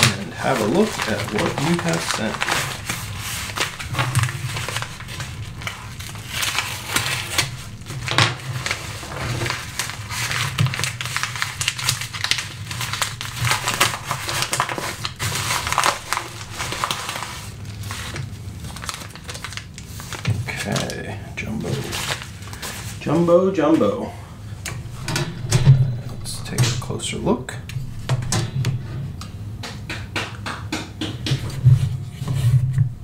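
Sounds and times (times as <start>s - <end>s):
packaging crinkling: 0.0s - 23.1s.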